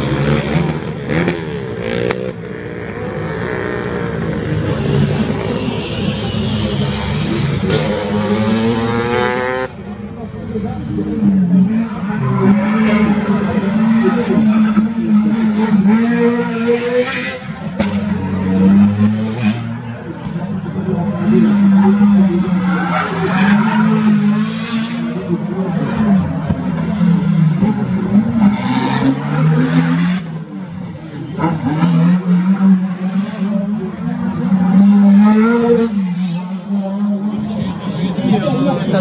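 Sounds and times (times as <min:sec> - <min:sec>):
rally car engines revving: 0:00.0 - 0:39.0
tyre squeal: 0:27.2 - 0:28.6.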